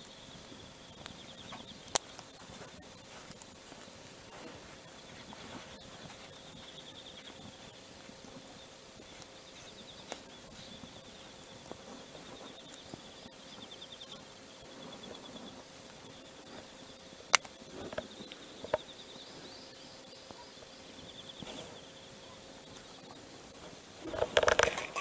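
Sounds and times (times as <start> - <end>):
insect trilling: 0.0 - 25.0
small sharp clicks: 17.3 - 18.8.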